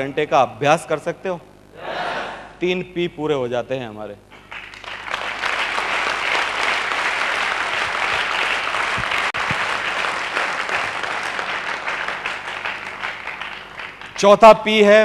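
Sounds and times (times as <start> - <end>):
audience applauding: 4.4 - 14.4.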